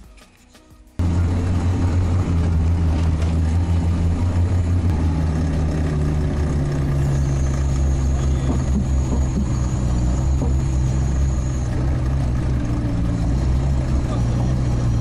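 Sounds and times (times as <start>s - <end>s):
diesel engine running: 1.0s - 15.0s
thin high whine: 1.0s - 15.0s.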